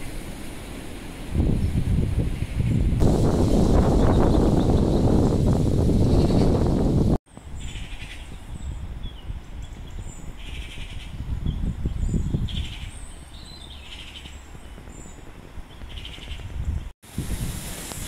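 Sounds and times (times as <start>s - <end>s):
wind rumbling on microphone: 0.0s - 18.0s
birds calling harshly: 7.6s - 16.9s
thin high bird chirps: 7.6s - 16.9s.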